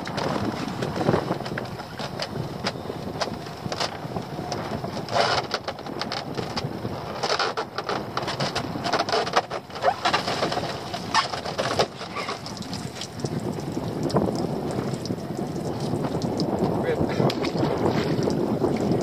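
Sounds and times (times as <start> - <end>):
water splashing and dripping: 9.8 - 19.0.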